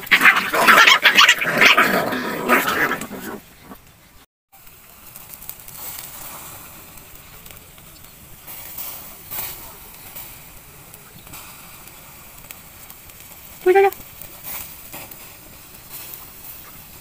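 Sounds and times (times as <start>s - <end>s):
puppies growling and barking: 0.0s - 3.8s
faint steady hiss: 3.0s - 17.0s.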